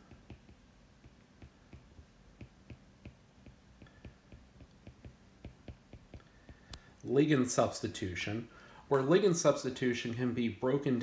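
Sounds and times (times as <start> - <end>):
stylus tapping on tablet: 0.0 - 6.9
faint low hum: 0.0 - 11.0.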